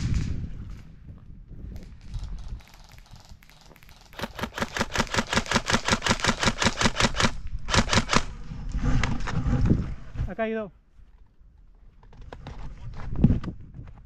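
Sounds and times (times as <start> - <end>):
airsoft rifle firing full auto: 4.2 - 8.3.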